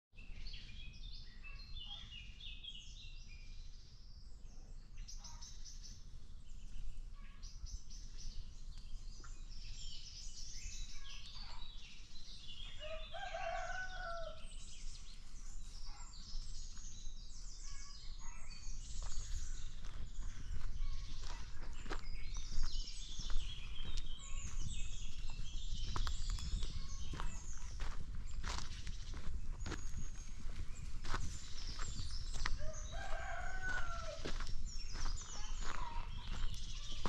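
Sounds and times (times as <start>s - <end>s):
rooster crowing: 12.8s - 14.4s, 32.6s - 34.4s
high-pitched bird chirping: 17.6s - 37.0s.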